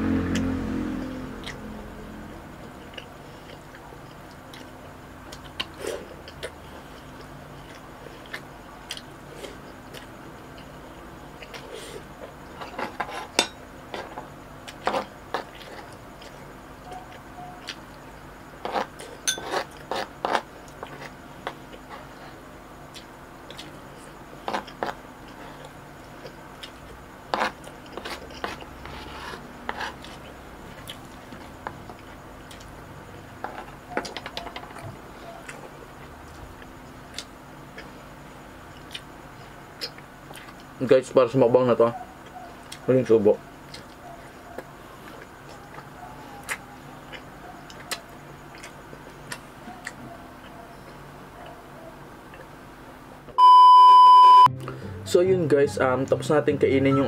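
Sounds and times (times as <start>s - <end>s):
chewing: 1.3s - 1.6s, 2.8s - 10.7s, 13.9s - 18.0s, 18.6s - 32.8s, 33.4s - 38.0s, 38.7s - 40.7s, 42.2s - 42.9s, 43.6s - 51.6s, 52.2s - 52.6s.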